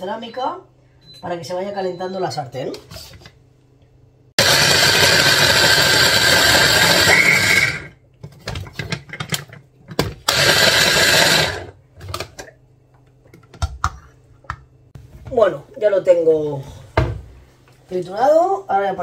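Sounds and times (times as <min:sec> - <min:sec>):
electric chopper motor: 0:04.4 - 0:07.9, 0:10.3 - 0:11.7.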